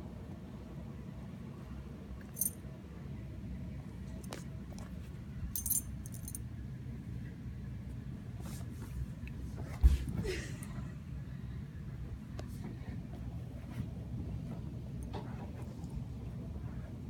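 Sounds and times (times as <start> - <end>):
steady low hum: 0.0 - 17.0
dog collar tags jingling: 2.4 - 2.6, 5.6 - 6.4.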